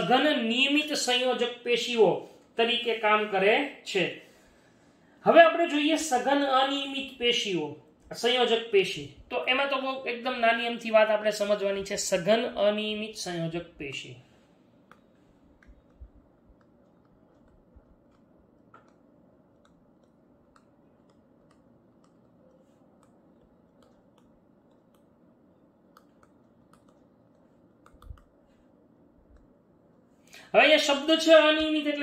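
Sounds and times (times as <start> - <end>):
stylus tapping on touchscreen: 14.8 - 25.2.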